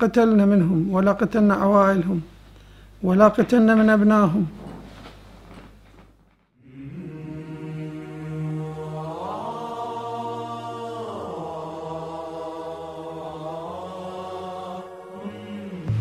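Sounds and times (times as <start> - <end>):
sombre chant-like drone music: 6.6 - 16.0.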